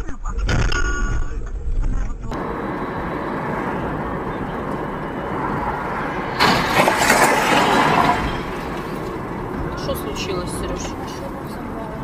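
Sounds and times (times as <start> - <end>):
road and engine noise in car: 1.7 - 12.0
vehicle collision crash: 2.4 - 11.2.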